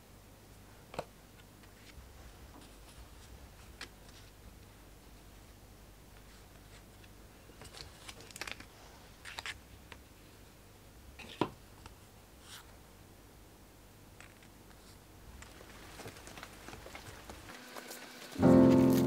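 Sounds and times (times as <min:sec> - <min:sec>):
paper and plastic rustling: 0:06.2 - 0:09.6, 0:14.2 - 0:19.0.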